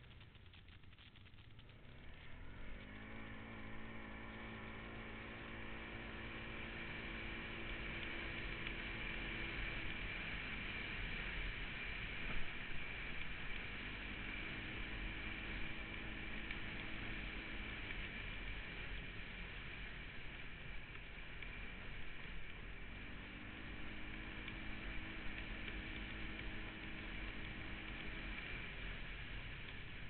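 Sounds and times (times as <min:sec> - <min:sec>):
atv engine running: 0:00.0 - 0:30.0
rush of riding noise: 0:00.0 - 0:30.0.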